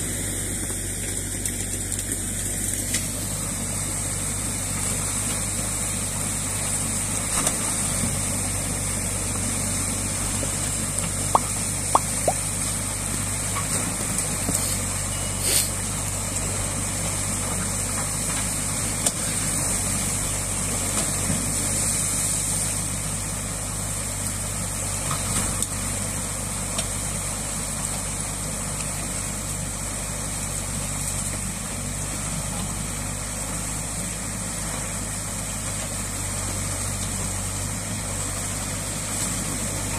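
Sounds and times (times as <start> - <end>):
diesel excavator engine running: 0.0 - 39.9
water gushing and rushing: 11.1 - 12.8.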